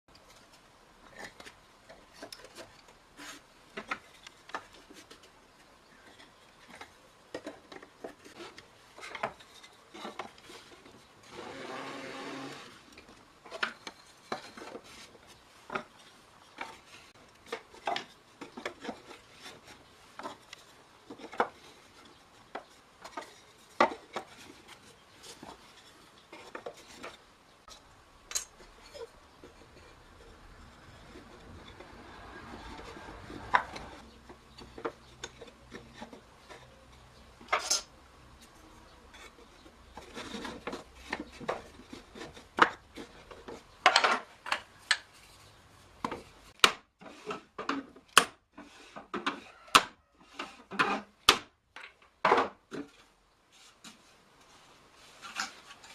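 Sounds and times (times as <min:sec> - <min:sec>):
wood scraping: 0:00.1 - 0:55.9
wooden staves knocking: 0:30.6 - 0:36.8, 0:46.0 - 0:53.1.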